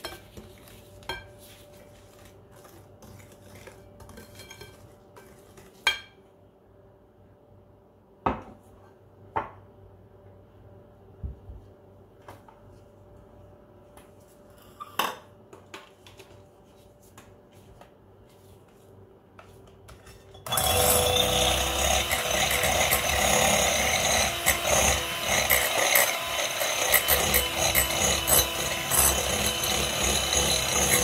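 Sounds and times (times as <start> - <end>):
electric hand mixer running: 20.5 - 31.0.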